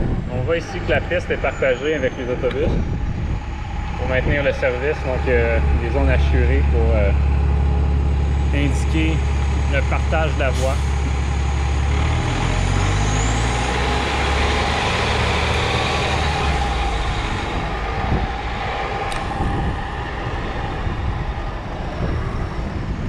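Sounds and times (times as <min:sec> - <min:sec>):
bus engine idling and revving: 0:00.0 - 0:23.0
street noise: 0:00.0 - 0:23.0.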